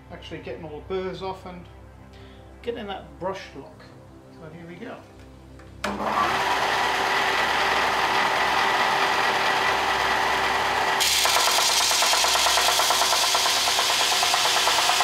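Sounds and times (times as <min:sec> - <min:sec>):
belt sander running: 0:05.8 - 0:15.0.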